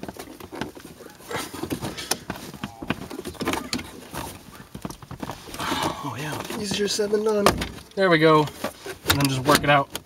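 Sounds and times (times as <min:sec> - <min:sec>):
trim panel clips clicking and creaking: 0:09.0 - 0:10.0.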